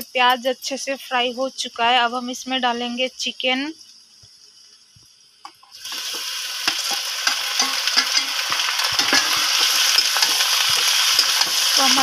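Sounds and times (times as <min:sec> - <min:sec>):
knocks in pan: 0:05.4 - 0:11.7
chicken sizzling in hot oil: 0:05.6 - 0:12.0
metal spatula scraping pan: 0:06.7 - 0:11.9.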